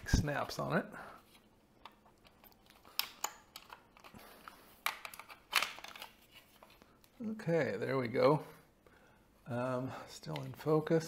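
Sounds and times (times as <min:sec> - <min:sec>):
plastic clips clicking and creaking: 0:01.8 - 0:06.2.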